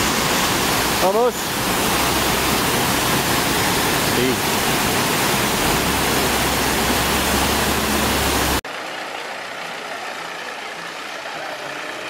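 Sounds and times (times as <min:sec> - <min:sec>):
river water rushing over rocks: 0:00.0 - 0:12.0
bus engine running: 0:05.2 - 0:12.0
truck engine idling: 0:05.5 - 0:12.0.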